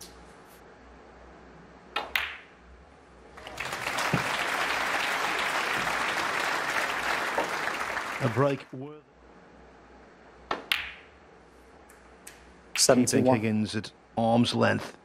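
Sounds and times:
snooker balls clicking: 2.0 - 2.5, 10.5 - 11.1
crowd applauding: 3.3 - 8.8.

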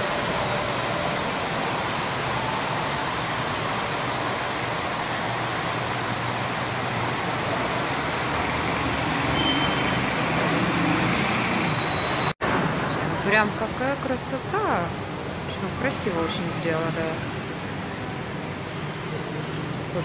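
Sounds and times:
faint high whistle: 7.6 - 10.3, 11.7 - 12.3.

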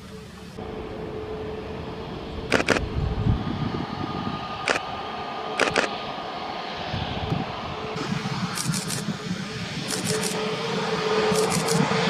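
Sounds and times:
jet engines idling: 0.0 - 12.0
sharp clicks: 2.5 - 2.8, 5.6 - 5.9, 8.6 - 9.1, 9.8 - 10.4, 11.3 - 11.8.

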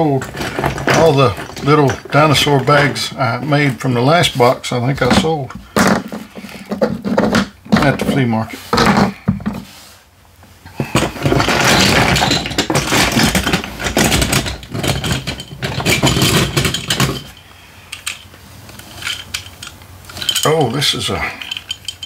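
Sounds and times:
plastic toys rattling in a box: 0.0 - 3.2, 10.8 - 17.4, 18.8 - 22.0.

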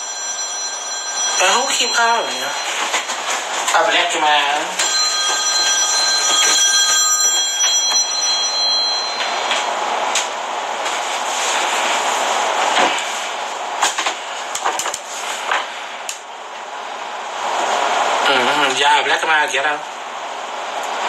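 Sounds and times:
phone ringing: 0.0 - 9.8.

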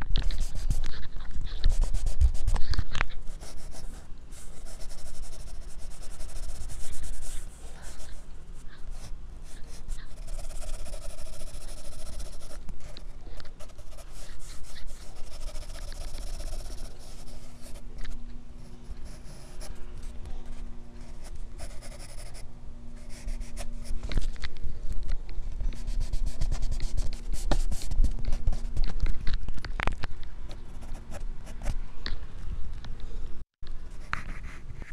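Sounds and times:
pencil sketching on paper: 1.6 - 2.5, 3.3 - 17.8, 18.8 - 19.8, 21.0 - 22.4.

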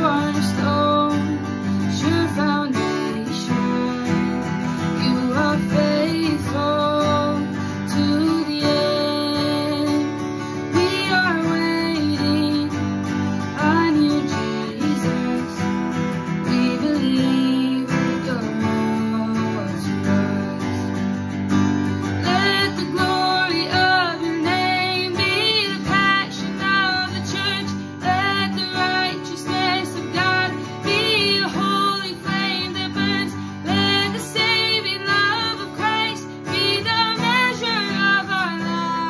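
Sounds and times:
strummed acoustic guitar: 0.0 - 39.0
woman singing: 0.0 - 39.0.

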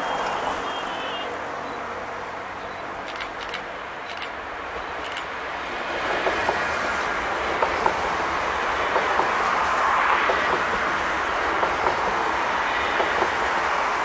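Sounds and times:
train wheels rushing on rail: 3.0 - 14.0.

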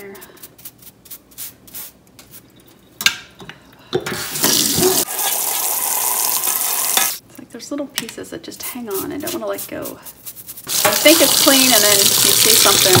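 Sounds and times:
brush scrubbing metal mesh basket: 8.6 - 13.0.

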